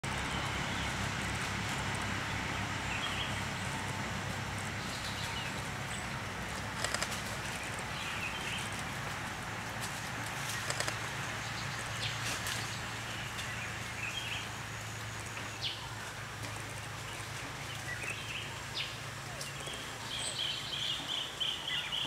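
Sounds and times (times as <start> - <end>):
quick clicks: 6.8 - 7.4, 10.5 - 11.0.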